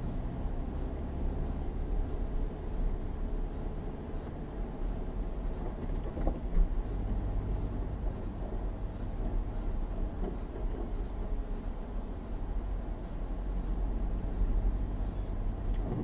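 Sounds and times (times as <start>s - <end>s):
engine and tyres rumbling on snow: 0.0s - 16.0s.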